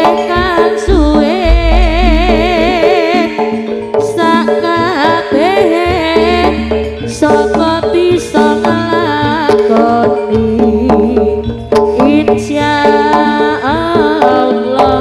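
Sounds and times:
hand drums beating: 0.0s - 15.0s
ornamented melody line: 0.0s - 15.0s
low booming notes: 0.9s - 3.0s.

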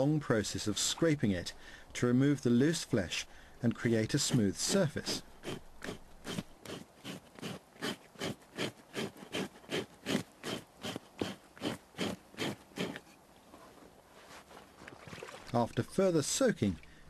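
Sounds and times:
scraper scraping animal skin: 3.8s - 13.2s.

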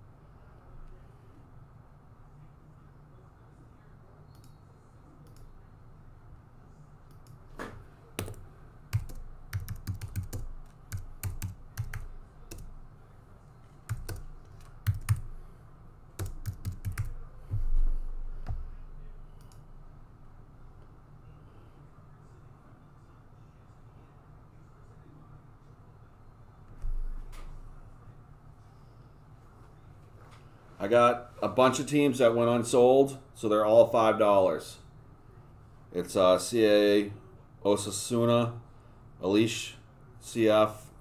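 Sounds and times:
computer keyboard typing: 8.2s - 12.7s, 13.9s - 15.4s, 16.2s - 17.2s.

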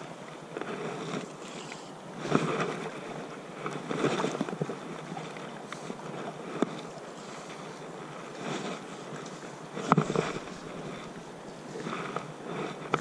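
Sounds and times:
river water rushing and lapping: 0.0s - 13.0s
wind on microphone: 7.8s - 13.0s.

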